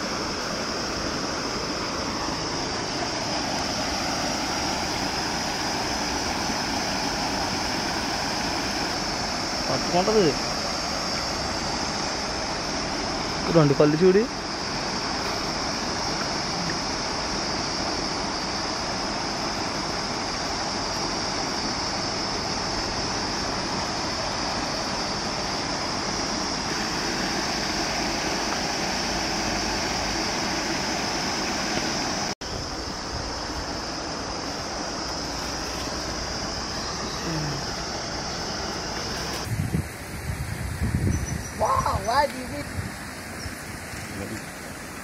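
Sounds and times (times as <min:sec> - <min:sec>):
constant high hiss: 0:00.0 - 0:45.0
stream water flowing: 0:00.0 - 0:45.0.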